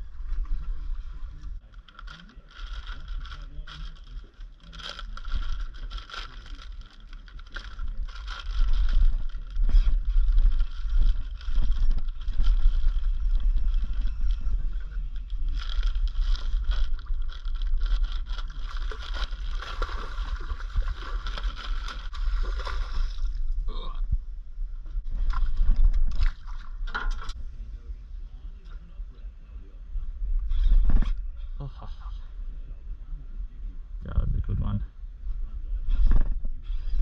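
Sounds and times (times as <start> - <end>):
low rumble: 0.0 - 37.0
fish splashing: 18.4 - 23.3.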